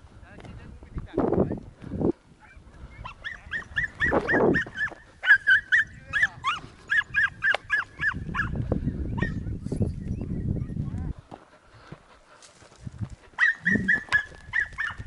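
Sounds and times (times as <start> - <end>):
dog yelping: 2.4 - 8.6, 9.2 - 9.4, 13.4 - 15.0
rustle through scrub: 11.1 - 15.0.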